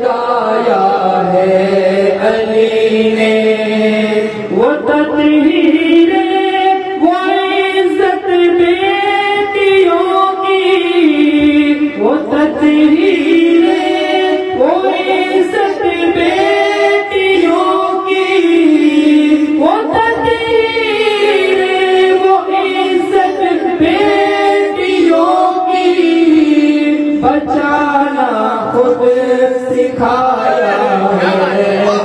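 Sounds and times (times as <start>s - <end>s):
man singing unaccompanied: 18.9s - 32.0s.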